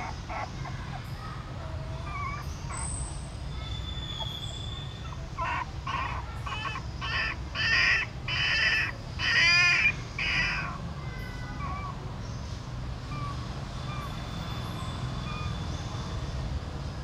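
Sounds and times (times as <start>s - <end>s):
crow cawing: 5.4s - 11.9s.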